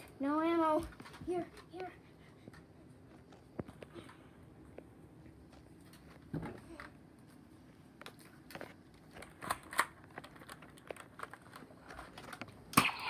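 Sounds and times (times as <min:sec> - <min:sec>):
rustling and clatter: 0:00.7 - 0:04.2
plastic toy blasters clicking and rattling: 0:08.5 - 0:13.0.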